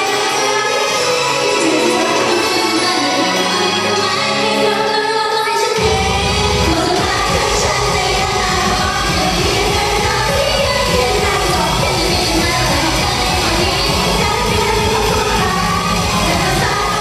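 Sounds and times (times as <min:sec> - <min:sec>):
women singing into microphones: 0:00.0 - 0:17.0
pop backing track with drum beat: 0:05.8 - 0:17.0.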